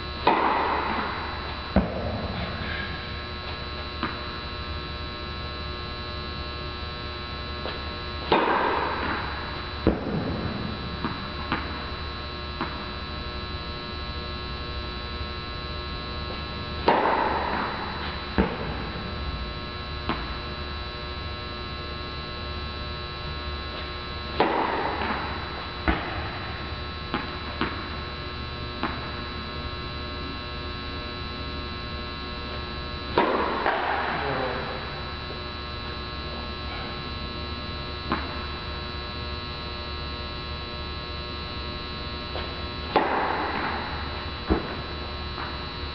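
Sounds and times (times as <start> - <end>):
electrical mains hum: 0.0 - 45.9
tennis racquet strikes: 0.2 - 2.9, 7.6 - 11.8, 16.3 - 18.9, 23.8 - 26.5, 33.1 - 34.4, 42.3 - 44.8.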